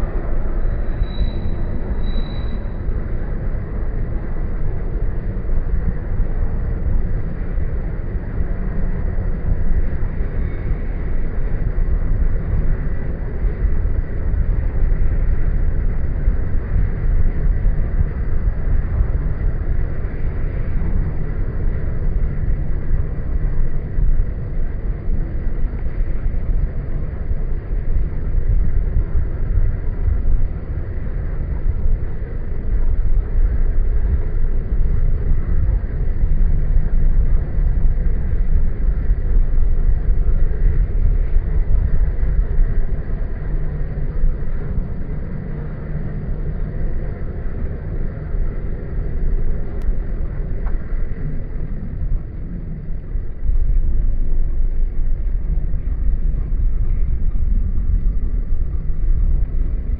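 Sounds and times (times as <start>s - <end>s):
car engine and road noise: 0.0s - 59.9s
wind on microphone: 0.0s - 59.9s.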